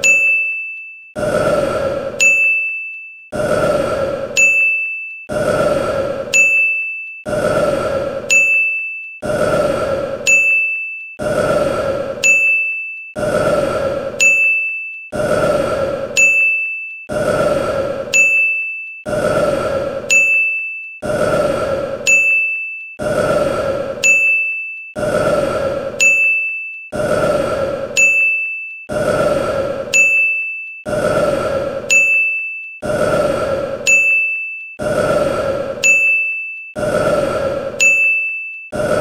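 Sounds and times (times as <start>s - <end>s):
bright bell ding: 0.0s - 0.7s, 2.2s - 2.9s.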